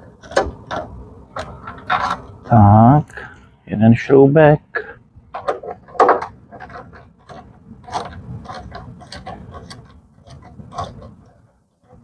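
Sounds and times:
screwdriver clicking and scraping: 5.4 - 12.0.

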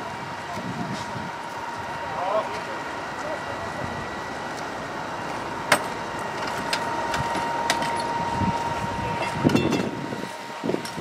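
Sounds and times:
machinery whining: 0.0 - 11.0.

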